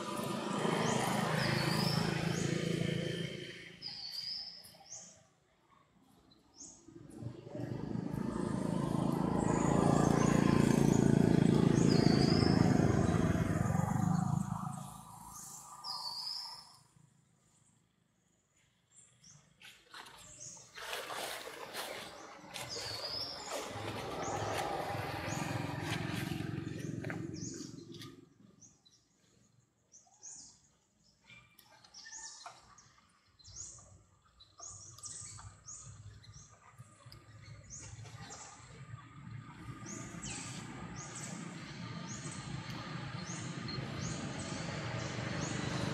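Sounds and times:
passing motor engine rumble: 7.2 - 15.4, 22.6 - 28.2, 37.7 - 45.9
faint birds chirping: 21.9 - 45.9.

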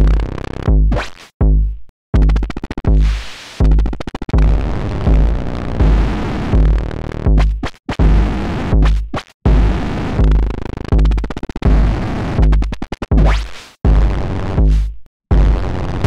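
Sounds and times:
electronic bass drum thumping: 0.0 - 15.8
stuttering bursts of clicks: 2.2 - 4.5, 10.0 - 13.7.

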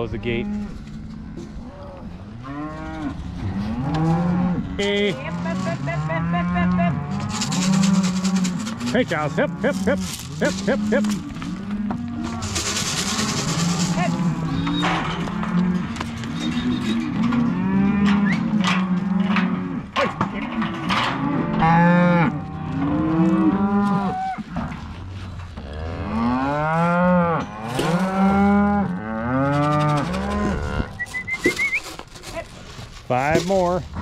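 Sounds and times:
cattle mooing and bawling: 0.3 - 31.8.

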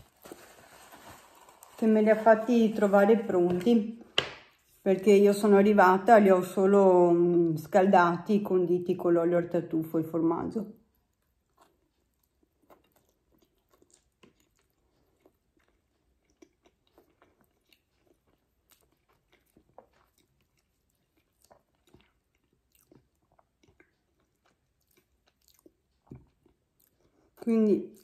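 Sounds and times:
faint chewing spaghetti: 10.6 - 28.0.

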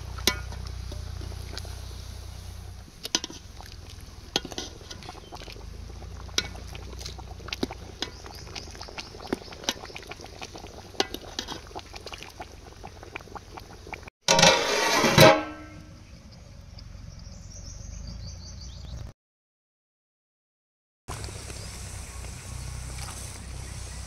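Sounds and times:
metal utensil scraping a pot: 0.1 - 1.9, 3.0 - 12.3, 14.3 - 15.8.

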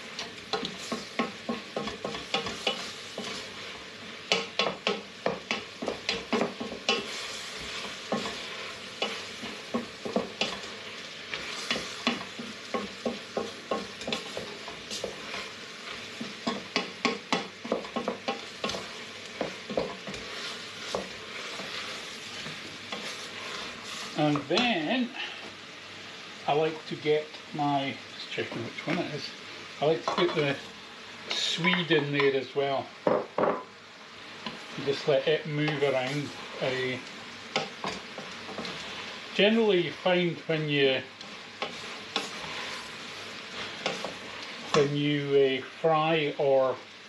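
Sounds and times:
vegetables sizzling in pot: 0.0 - 47.0
spoon knocking and scraping pot: 0.3 - 3.4, 4.3 - 8.4, 9.0 - 10.7, 11.3 - 15.4, 16.2 - 23.6, 43.8 - 44.8.

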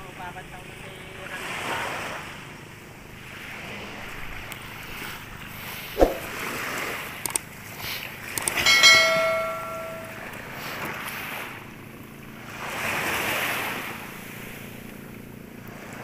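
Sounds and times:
wind: 0.0 - 16.0
sharp knock: 6.0 - 6.3
metal pail clanking: 8.6 - 10.2
surf: 8.6 - 10.2.

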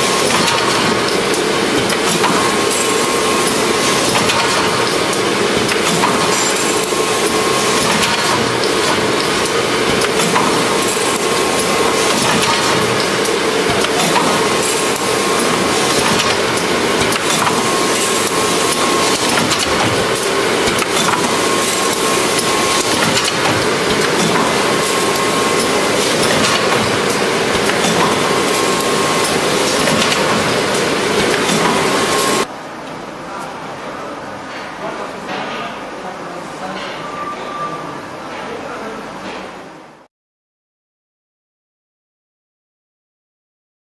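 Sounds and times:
machine clattering: 0.0 - 32.5
machine hum: 0.0 - 32.6.

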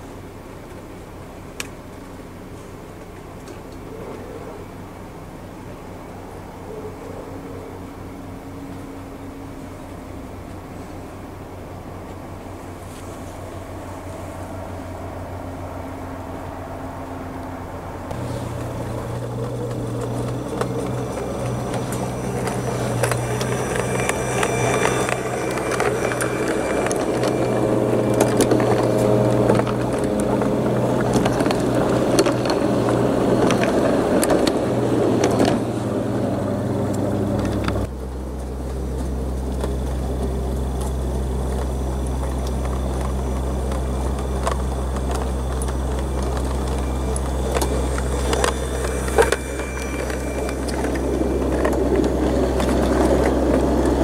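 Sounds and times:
wheels clicking on rails: 0.0 - 54.0
model train motor hum: 8.0 - 37.9, 39.1 - 54.0.

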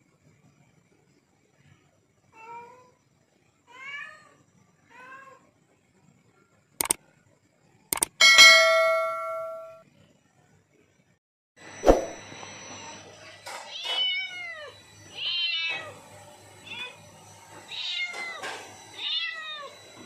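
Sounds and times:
sharp clicks: 7.9 - 8.2
bell-like chime: 8.1 - 9.8
cat meowing: 13.7 - 16.0, 17.7 - 18.4, 19.0 - 19.8.

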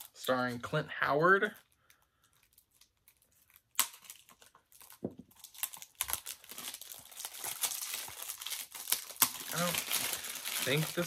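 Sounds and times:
plastic packaging crinkling: 1.2 - 11.0.

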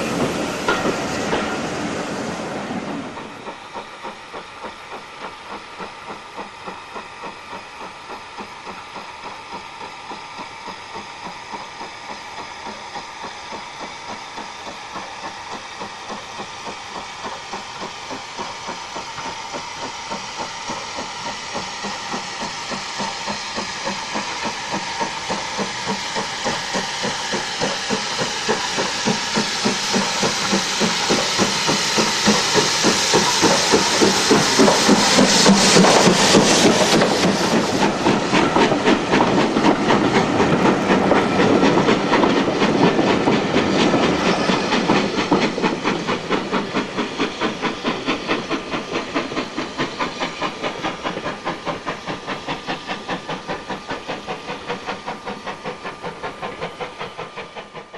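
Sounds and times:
steam hissing: 0.0 - 57.9
steam locomotive chuffing: 0.0 - 57.9.

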